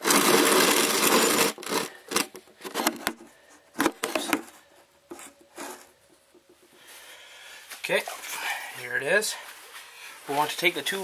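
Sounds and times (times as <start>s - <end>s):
metal parts clicking and knocking: 0.0s - 3.2s.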